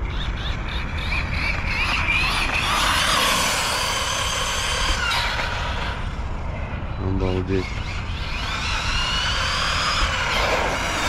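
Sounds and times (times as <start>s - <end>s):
rc truck electric motor whining: 0.9s - 6.1s, 7.8s - 11.0s.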